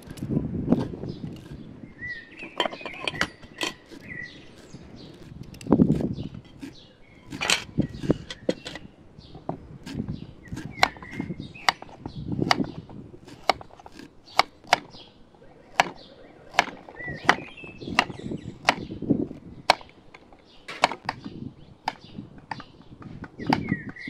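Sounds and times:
knife slicing carrot on wood: 9.8s - 14.9s.

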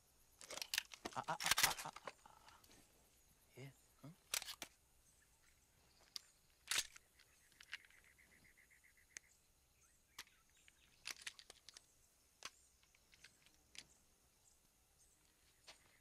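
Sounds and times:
sharp clicks: 0.4s - 2.7s, 6.1s - 8.1s.

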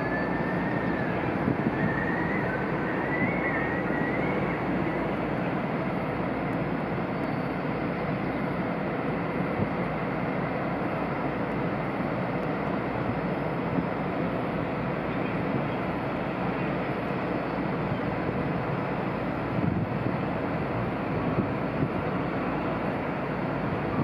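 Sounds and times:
distant traffic noise: 0.0s - 24.0s
wind: 0.0s - 24.0s.

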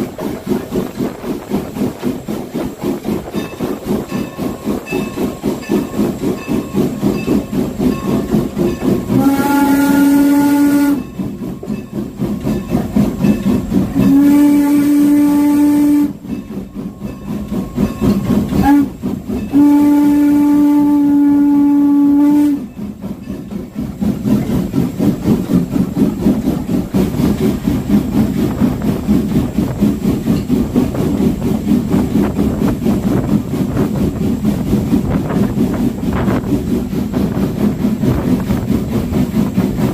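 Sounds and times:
train chuffing and rumbling: 0.0s - 39.9s
steam whistle blasts: 9.0s - 11.3s, 14.0s - 16.3s, 18.6s - 22.8s.

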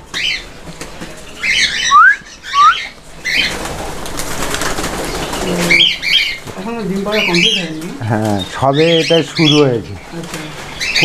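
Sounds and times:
cockatiels whistling and calling: 1.4s - 3.6s
bird wingbeats: 3.3s - 8.1s.

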